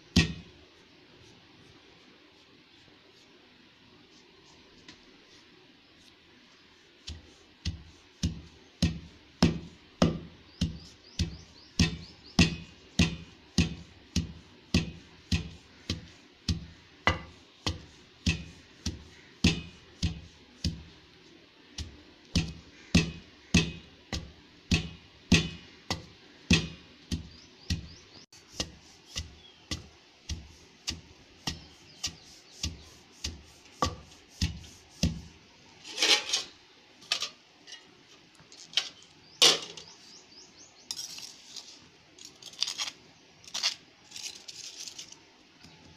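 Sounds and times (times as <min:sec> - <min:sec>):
pestle pounding in stone mortar: 0:00.1 - 0:00.5, 0:07.0 - 0:21.0, 0:21.8 - 0:35.4.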